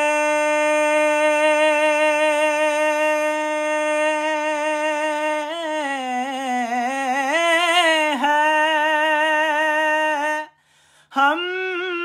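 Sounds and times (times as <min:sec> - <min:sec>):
man singing long vowel: 0:00.0 - 0:12.0.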